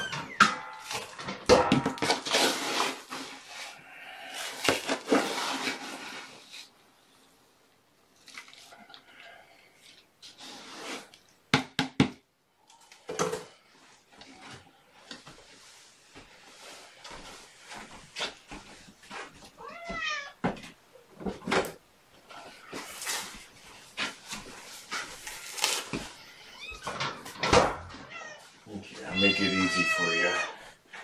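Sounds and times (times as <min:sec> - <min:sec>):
cat meowing: 0:19.6 - 0:20.4, 0:28.0 - 0:30.6.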